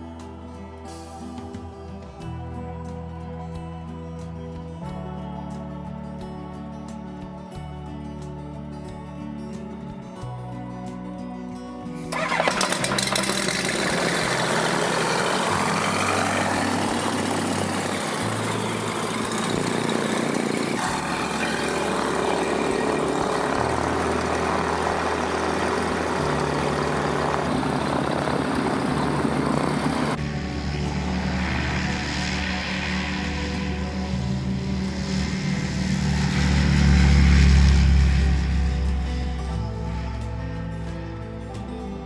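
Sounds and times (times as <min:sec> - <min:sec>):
light aircraft engine droning: 0:12.1 - 0:42.0.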